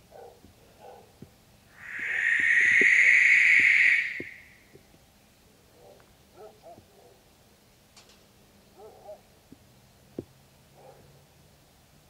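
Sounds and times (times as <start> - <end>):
owl hissing screech: 1.8 - 4.6.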